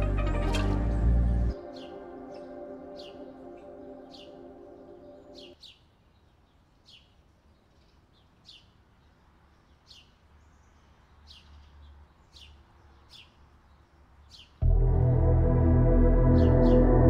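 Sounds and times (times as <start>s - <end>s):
soft held musical chord: 0.0s - 5.6s, 14.6s - 17.0s
bird chirping: 0.0s - 14.6s.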